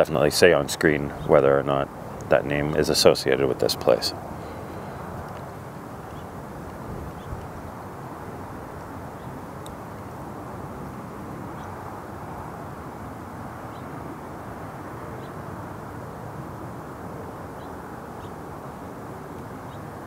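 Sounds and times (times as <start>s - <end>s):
outdoor rumble and hiss: 0.0s - 20.0s.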